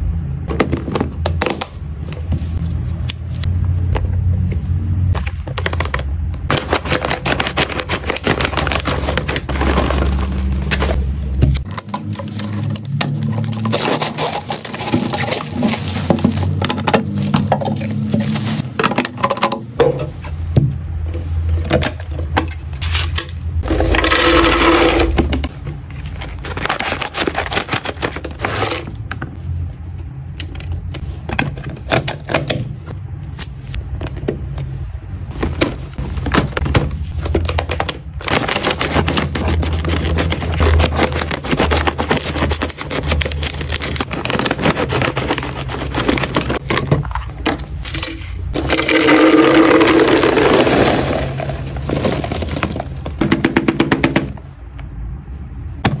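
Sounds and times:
treat cubes rattling into plastic: 0:23.6 - 0:25.2, 0:36.2 - 0:48.0, 0:48.6 - 0:54.3.

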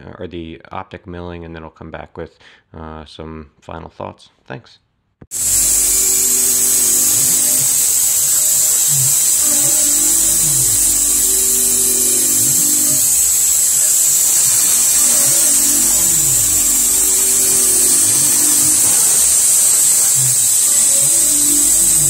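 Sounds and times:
cutter tones rising and falling: 0:05.4 - 0:22.0
milling machine cutting steel: 0:05.4 - 0:22.0.

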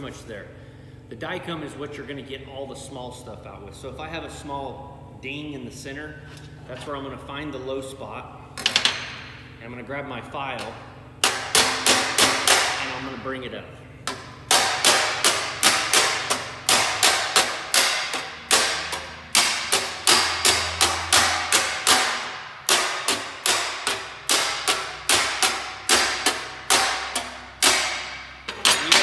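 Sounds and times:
hammer tapping sheet metal: 0:11.2 - 0:13.1, 0:14.1 - 0:29.0.

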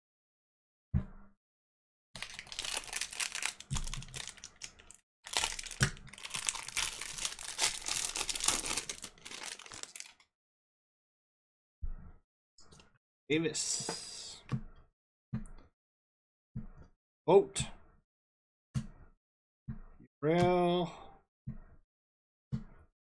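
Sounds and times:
foil wrapper crinkling and tearing: 0:02.2 - 0:10.2.

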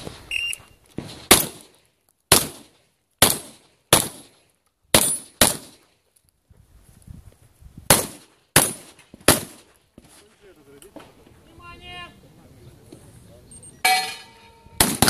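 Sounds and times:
shotgun shots: 0:01.0 - 0:05.8, 0:07.9 - 0:10.2, 0:14.8 - 0:15.0.

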